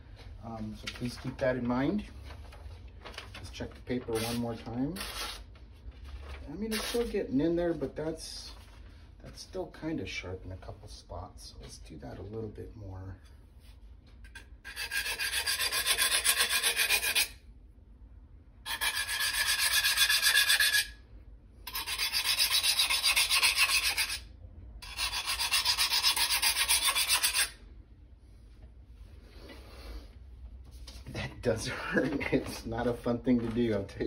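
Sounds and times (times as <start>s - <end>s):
file rasping on knife edge: 14.3s - 17.4s, 18.7s - 21.0s, 21.7s - 27.6s.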